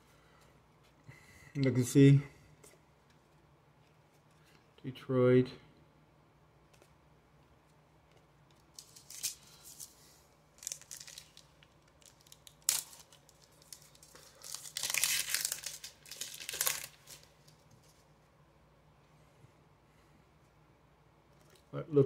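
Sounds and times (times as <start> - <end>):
foil wrapper crinkling and tearing: 8.7 - 17.7.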